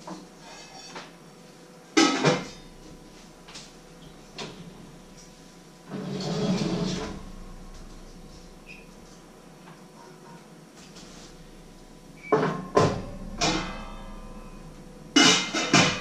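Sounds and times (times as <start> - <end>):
oven door scraping open: 5.9 - 7.4.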